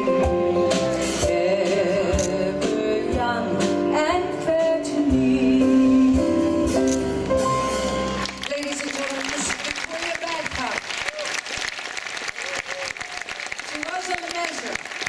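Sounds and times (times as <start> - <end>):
live rock band playing: 0.0 - 8.5
woman singing into microphone: 1.2 - 6.5.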